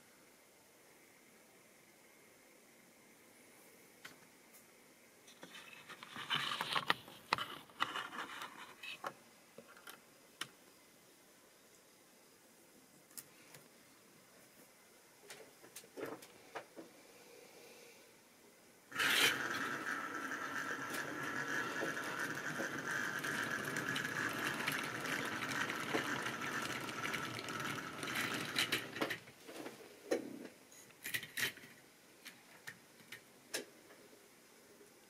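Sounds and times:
model train running on track: 0:18.9 - 0:29.2
wheels clicking over rail joints: 0:18.9 - 0:29.3.

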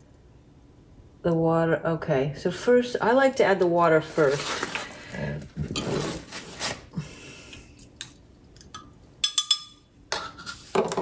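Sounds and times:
metal thermometer clinking on glass: 0:08.7 - 0:09.8
kitchen counter handling: 0:09.4 - 0:11.0.

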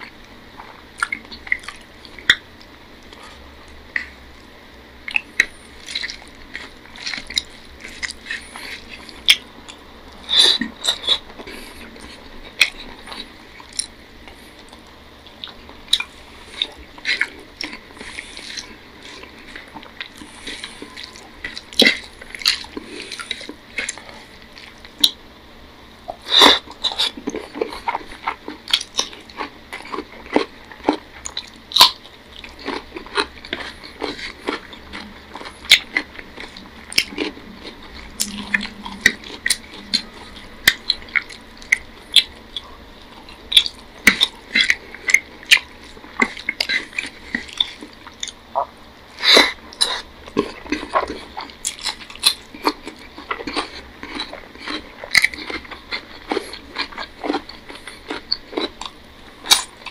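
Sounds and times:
chewing and lip smacks: 0:00.0 - 0:25.2, 0:26.1 - 0:59.9.

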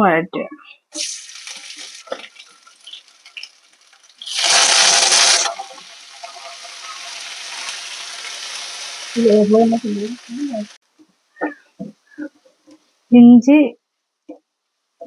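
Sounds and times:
oil sizzling: 0:00.9 - 0:10.8.

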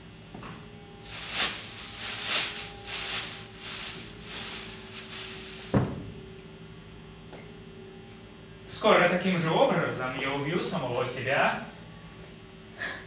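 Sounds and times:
electrical hum: 0:00.0 - 0:13.0
cloth bundle rustling: 0:01.0 - 0:05.9.

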